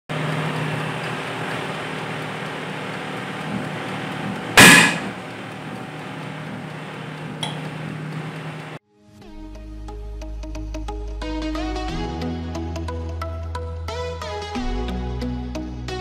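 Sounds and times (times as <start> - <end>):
electric oven humming: 0.1 - 8.8
loud sharp burst: 4.6 - 5.2.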